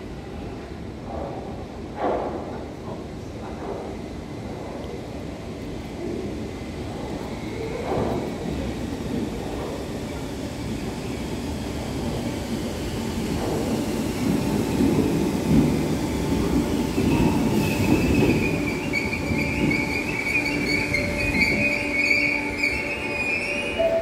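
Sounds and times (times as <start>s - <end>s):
train rumble: 0.0s - 24.0s
high-pitched brake squeal: 17.1s - 24.0s.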